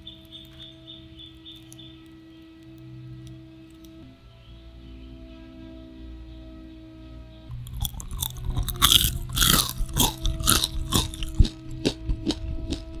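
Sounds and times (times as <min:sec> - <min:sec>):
soft background music: 0:00.0 - 0:13.0
crunchy fries being chewed: 0:07.5 - 0:13.0.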